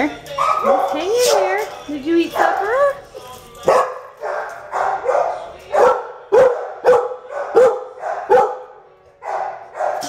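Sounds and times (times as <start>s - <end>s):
dog barking: 0.4s - 1.6s, 3.7s - 10.0s.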